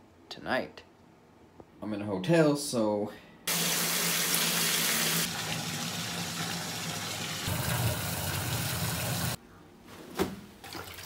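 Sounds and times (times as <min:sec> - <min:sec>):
water gushing into a tub: 0:03.5 - 0:09.4.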